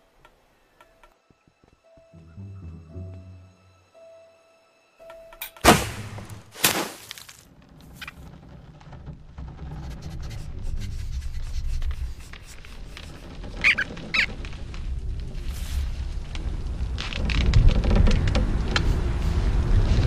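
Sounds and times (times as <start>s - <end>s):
cartoon rodent squeaks: 13.6s - 14.3s.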